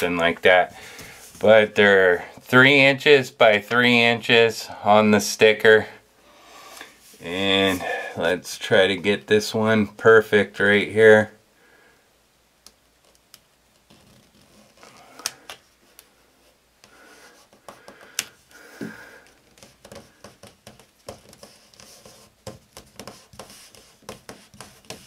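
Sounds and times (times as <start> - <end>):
sticker peeling and rubbing: 13.0 - 15.4, 19.4 - 25.0.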